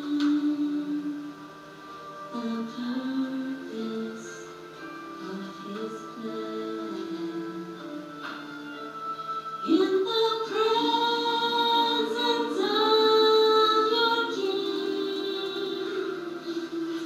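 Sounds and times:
women's choir singing: 0:09.6 - 0:17.0.

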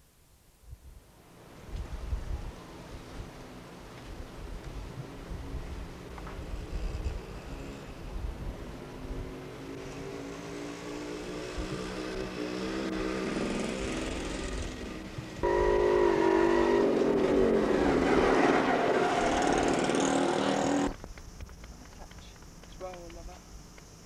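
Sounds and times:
vehicle engine pitch rising: 0:10.2 - 0:20.9
louder engine pitch falling: 0:12.1 - 0:20.9.

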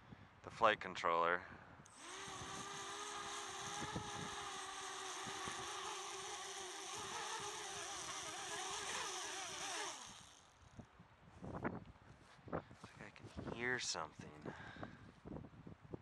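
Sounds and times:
drone motors whining: 0:01.9 - 0:10.6.

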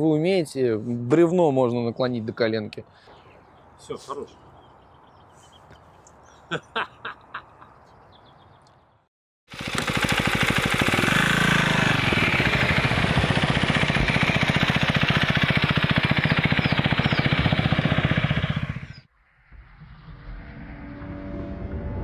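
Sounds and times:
motorcycle engine passing: 0:09.5 - 0:19.1.

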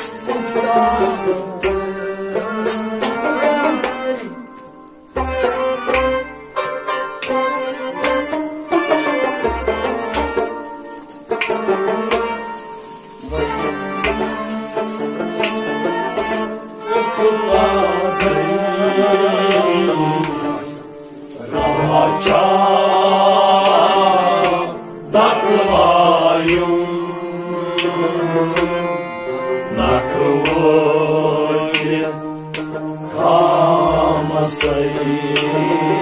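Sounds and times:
men singing together: 0:00.0 - 0:04.4, 0:17.0 - 0:36.0
drum strokes: 0:00.0 - 0:35.6
bowed string instrument: 0:00.0 - 0:36.0
harmonium: 0:00.0 - 0:36.0.

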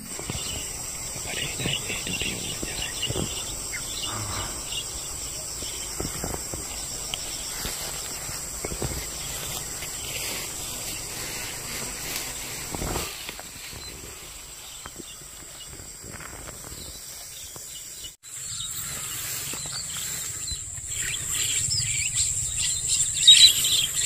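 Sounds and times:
insects droning: 0:00.0 - 0:24.0
rustling: 0:00.2 - 0:17.2.

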